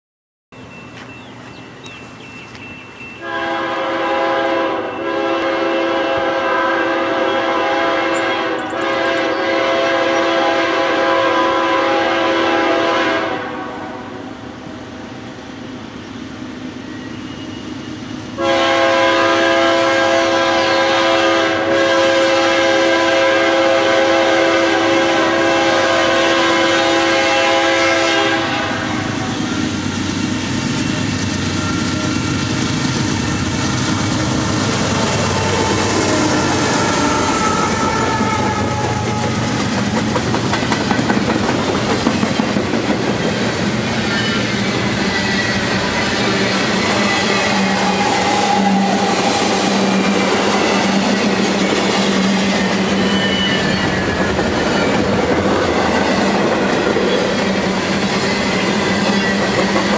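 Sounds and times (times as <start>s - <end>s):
diesel locomotives rumbling: 0.6s - 59.9s
locomotive air horn blasts: 3.2s - 14.3s, 18.4s - 29.6s, 34.6s - 39.6s.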